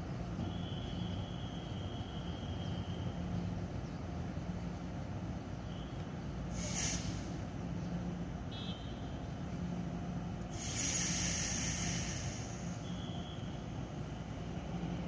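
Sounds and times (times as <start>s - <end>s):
air hisses: 6.5s - 7.4s, 10.5s - 12.8s.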